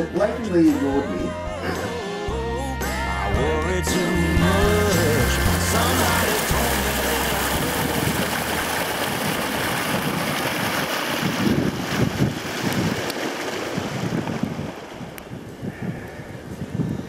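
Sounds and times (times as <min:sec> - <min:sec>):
wind rushing: 0:07.5 - 0:17.0
wind buffeting the microphone: 0:07.8 - 0:17.0.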